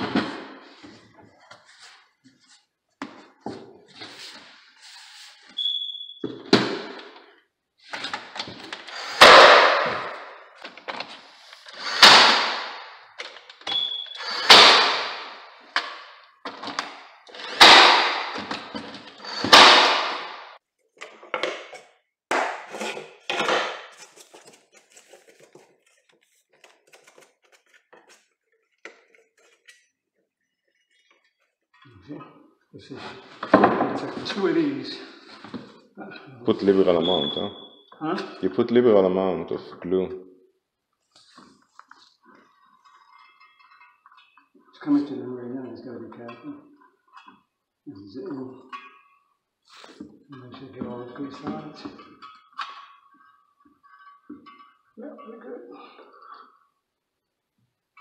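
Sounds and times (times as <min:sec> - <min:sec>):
nailer driving nails thuds: 0:14.2 - 0:15.4, 0:19.2 - 0:20.4.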